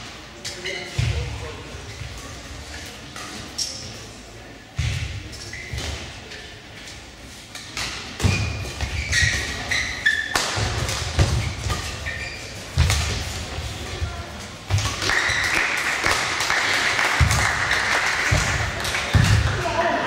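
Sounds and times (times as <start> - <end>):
shoes squeaking: 5.2 - 14.1
rackets hitting shuttlecock: 7.6 - 19.7.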